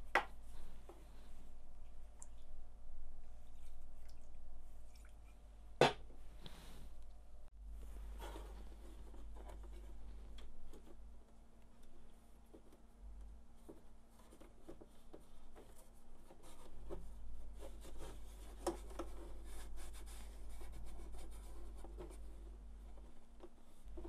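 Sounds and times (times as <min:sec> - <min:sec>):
small scratches and light knocks: 0:07.8 - 0:24.0.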